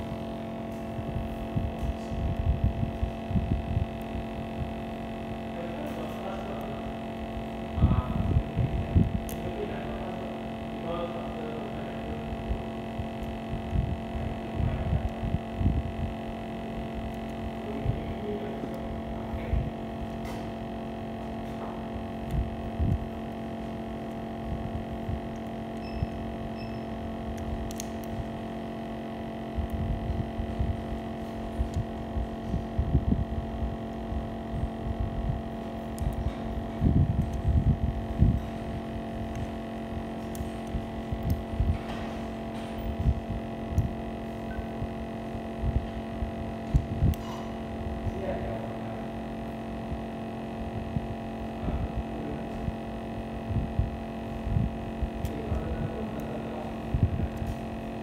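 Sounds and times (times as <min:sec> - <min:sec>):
electrical hum: 0:00.0 - 0:58.0.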